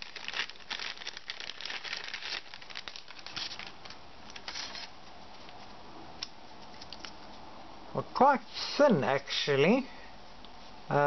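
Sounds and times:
plastic bag crinkling: 0.0s - 4.9s.

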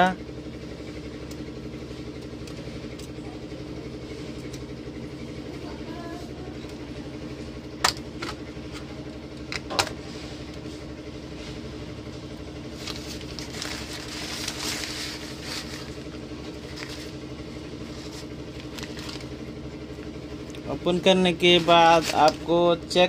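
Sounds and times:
low mains hum from amplifier: 0.0s - 23.0s
rustle of handling circuit board: 12.7s - 19.4s.

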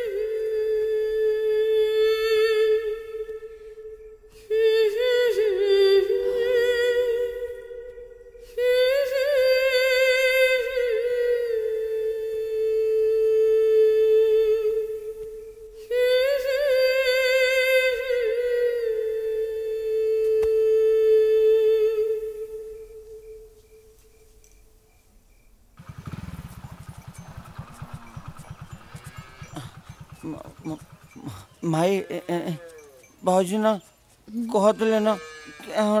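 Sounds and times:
wordless hummed vocal melody: 0.0s - 24.8s, 25.9s - 36.0s
steady held drone tone: 25.1s - 33.2s.

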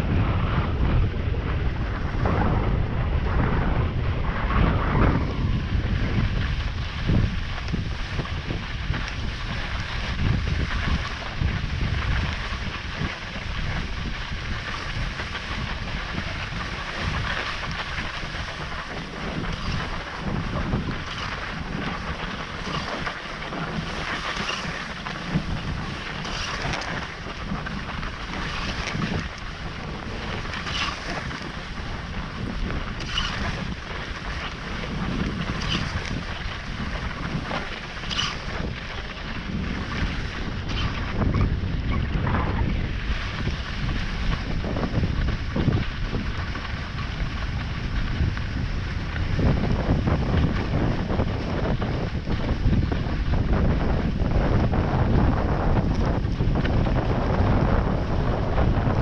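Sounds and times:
skis gliding on snow: 0.0s - 59.0s
wind buffeting microphone: 0.0s - 59.0s
ski swishes: 6.4s - 41.3s.

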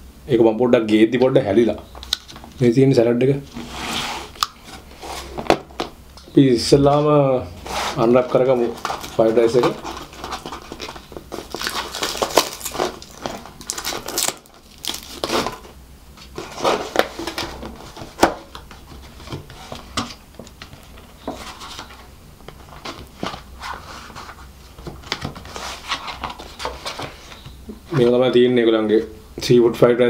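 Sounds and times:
paperboard box rustling and crackling: 7.6s - 28.2s.

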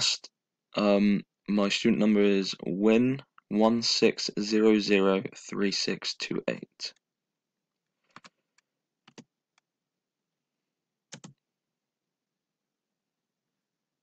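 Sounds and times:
computer clicks: 8.1s - 9.7s, 11.1s - 11.4s.

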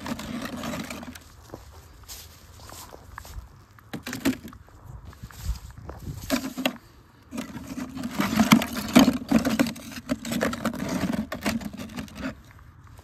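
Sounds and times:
sugar bricks scraping in bucket: 0.0s - 1.3s, 6.1s - 12.5s.

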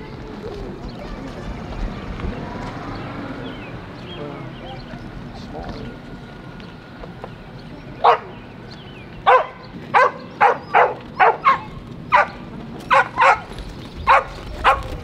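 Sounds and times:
dog barking: 8.0s - 8.3s, 9.2s - 15.0s.

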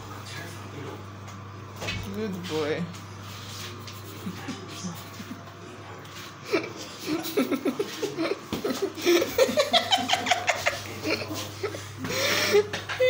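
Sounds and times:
people laughing and giggling: 3.9s - 5.5s, 6.4s - 13.0s.

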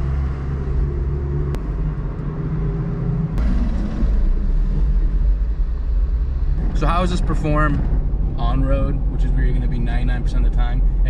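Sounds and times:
car engine running: 0.0s - 11.0s
tyre and road noise: 0.0s - 11.0s.

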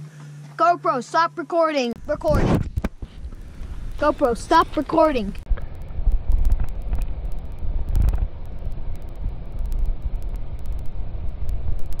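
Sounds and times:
sharp little clicks and pops: 2.0s - 12.0s
wind buffeting microphone: 2.0s - 12.0s.

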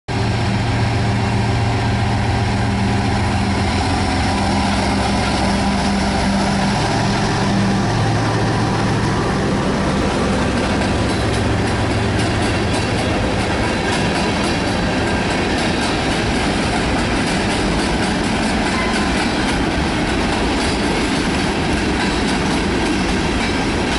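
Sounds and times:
diesel locomotive engines droning: 0.1s - 23.9s
rumble of rail cars rolling: 0.1s - 23.9s
wheels clicking over rail joints: 10.3s - 23.9s.

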